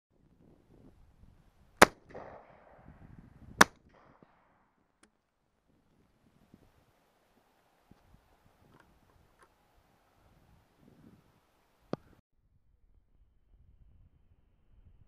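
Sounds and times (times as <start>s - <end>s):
shotgun shots with echo: 1.8s - 2.8s.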